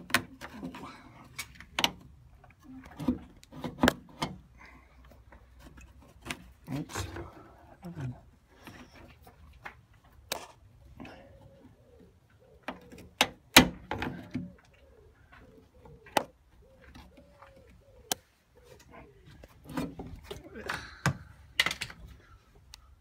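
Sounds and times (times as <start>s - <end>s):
pigeon cooing: 10.8s - 13.2s, 13.9s - 21.3s
car bonnet clicks and knocks: 12.7s - 14.5s.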